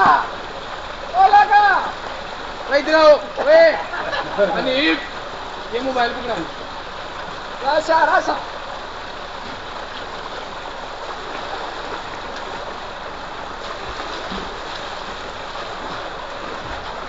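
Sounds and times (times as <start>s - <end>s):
people splashing in water: 0.0s - 0.6s, 9.6s - 17.0s.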